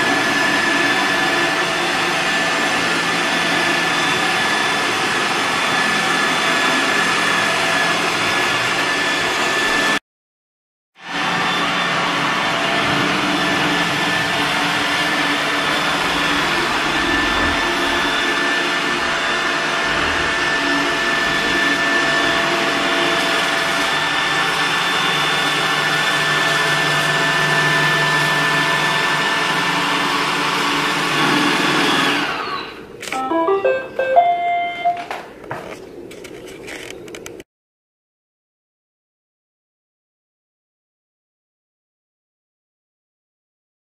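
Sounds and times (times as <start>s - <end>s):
robot vacuum running: 11.2s - 34.6s
electronic beep tones: 33.1s - 35.1s.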